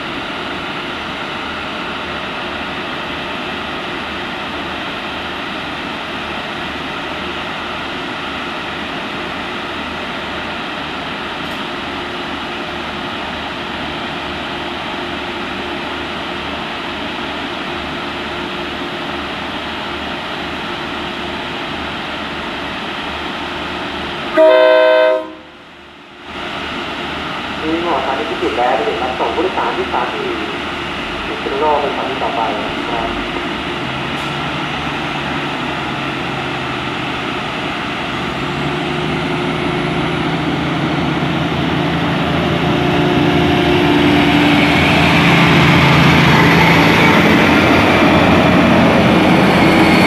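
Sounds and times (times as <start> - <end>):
diesel railcar engine idling: 0.0 - 49.8
train horn blast: 24.3 - 25.6.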